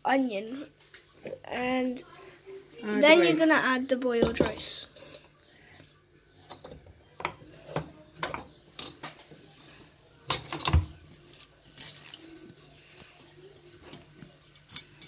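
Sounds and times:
wet rice plopping: 11.1 - 15.0.

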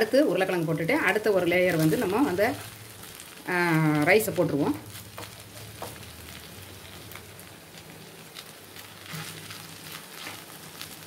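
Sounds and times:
food sizzling in a pan: 0.0 - 11.0
wooden spoon scraping and tapping: 5.1 - 6.1.

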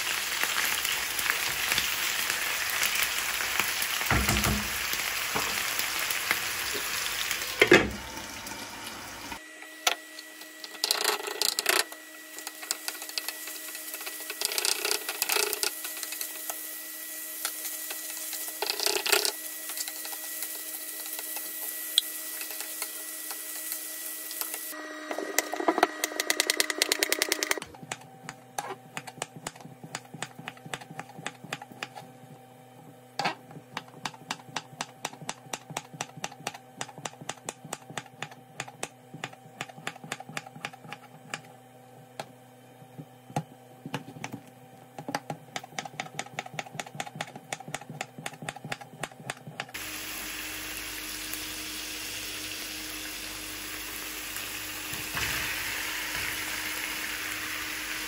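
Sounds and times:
food sizzling in a pan: 0.0 - 9.4, 15.9 - 24.8, 49.8 - 58.0.

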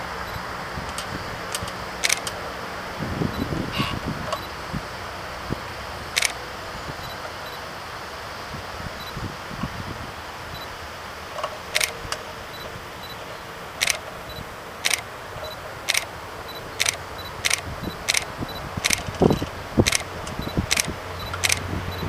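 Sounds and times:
distant turboprop engines: 0.0 - 22.0
sharp high clicks: 0.2 - 2.4, 3.4 - 4.5, 6.1 - 6.4, 11.4 - 22.0.

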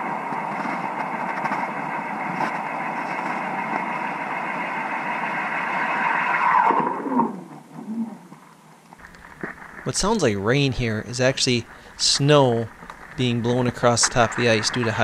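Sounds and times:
ice auger drilling underwater: 9.0 - 15.0.

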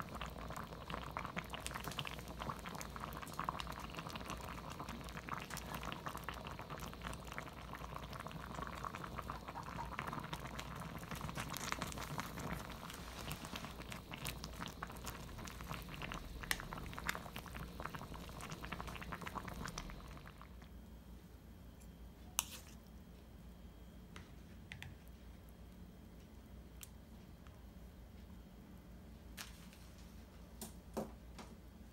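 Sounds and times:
stew bubbling and popping: 0.0 - 20.8.

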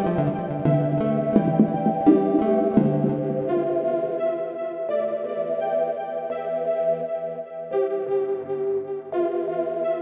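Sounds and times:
synthesizer chords: 0.0 - 7.4.

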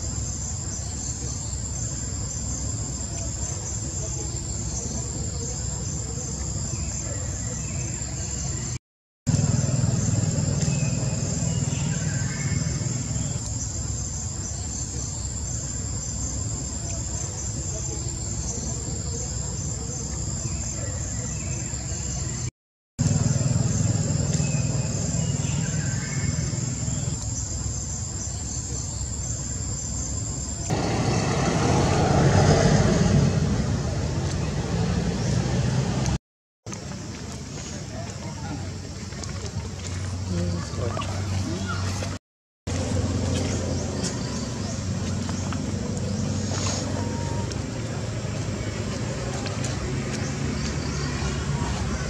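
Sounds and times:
low rumble: 9.3 - 13.9
high insect drone: 9.3 - 20.7, 23.0 - 33.7.

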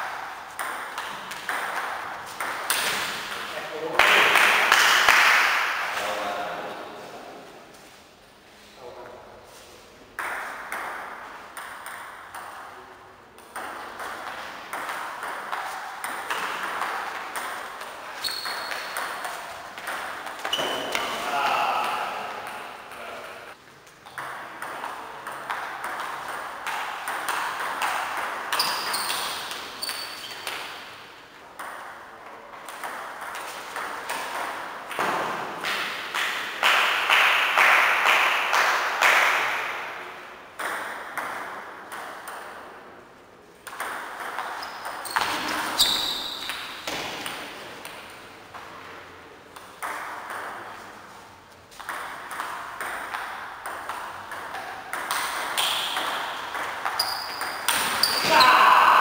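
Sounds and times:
table tennis balls bouncing: 0.0 - 6.0, 10.1 - 58.6
short high squeaks: 18.2 - 19.0, 28.5 - 30.5, 44.6 - 46.6.

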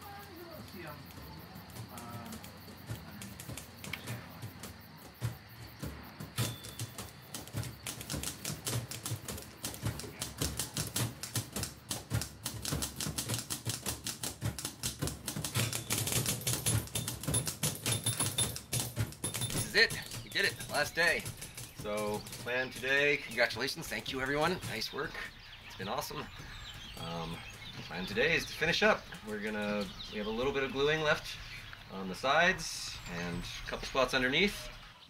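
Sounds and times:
typewriter keys clattering: 0.0 - 5.2, 5.8 - 25.3.

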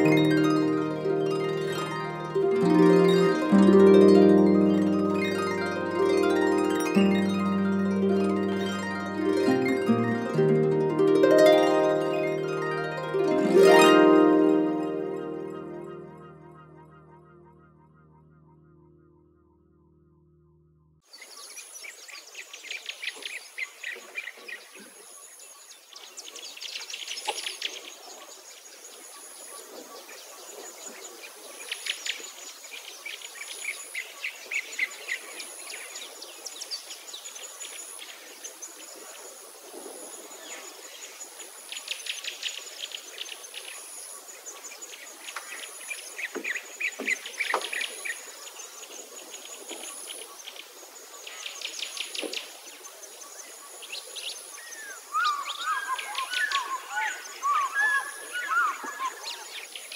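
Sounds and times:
birds chirping and trilling: 0.0 - 27.8, 42.9 - 50.5, 51.1 - 59.9
high pulsing insect call: 0.0 - 59.9.

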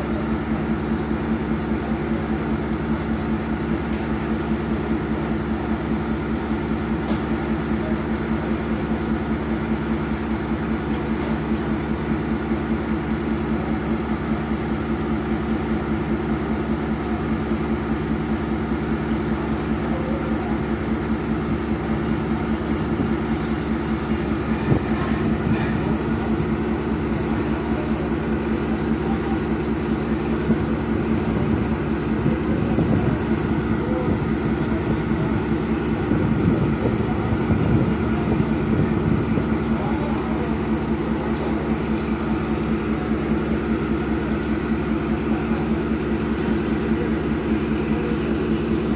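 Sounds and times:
locomotive engine droning: 0.0 - 48.9.

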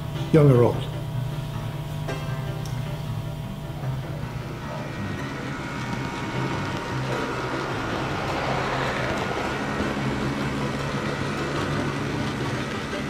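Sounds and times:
model train motor hum: 0.9 - 13.0
wheels rattling on rail: 6.3 - 13.0.

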